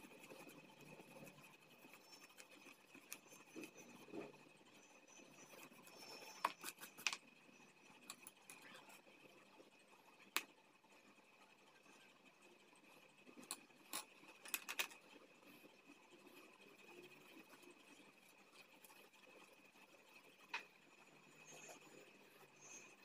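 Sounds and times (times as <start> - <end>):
pencils clicking and tapping: 5.4 - 7.2, 13.4 - 15.0.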